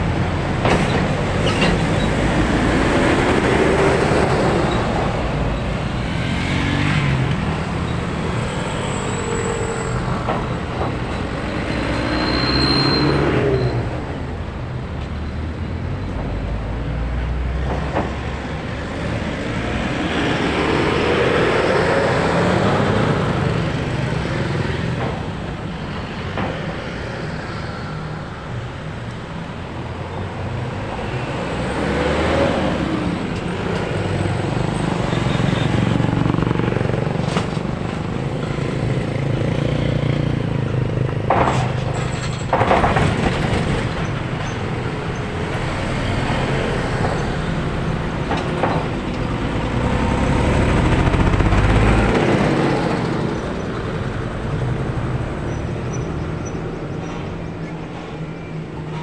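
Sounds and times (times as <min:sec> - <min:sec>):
cars passing: 0:00.0 - 0:59.0
diesel truck passing: 0:15.5 - 0:29.6, 0:43.1 - 0:57.9
motorcycles passing: 0:31.3 - 0:41.3, 0:43.7 - 0:55.5.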